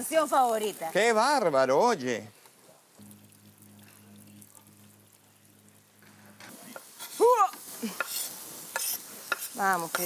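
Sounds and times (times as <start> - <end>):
low steady hum: 2.9 - 7.7.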